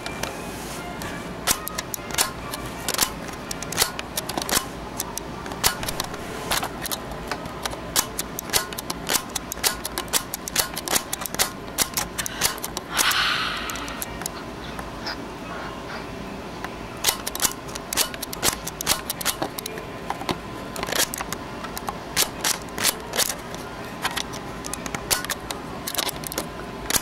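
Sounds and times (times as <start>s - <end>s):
breathy hiss from mouth: 12.2s - 14.2s
boy making mouth clicks: 12.2s - 14.4s.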